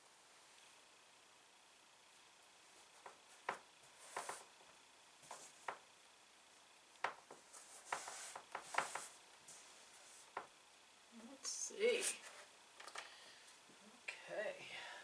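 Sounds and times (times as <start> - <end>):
soft fabric rustling: 2.7 - 4.6, 5.2 - 5.8, 7.2 - 10.5.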